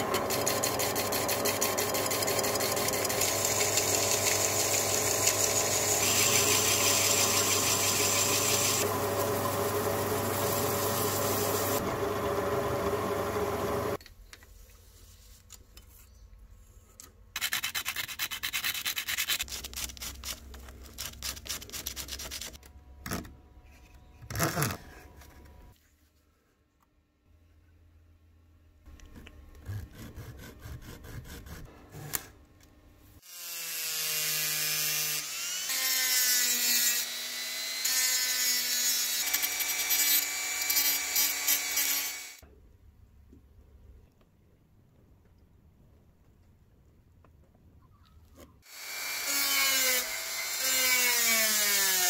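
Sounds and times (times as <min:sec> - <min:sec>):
lathe motor hum: 0:00.0 - 0:14.0
lathe tool scraping workpiece: 0:00.0 - 0:14.0.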